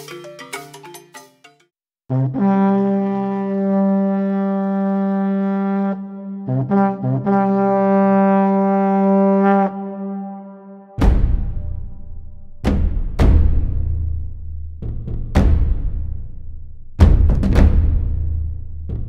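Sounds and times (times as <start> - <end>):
low brass notes: 2.1 - 11.1
deep drum strike: 11.0 - 16.3, 17.0 - 19.0.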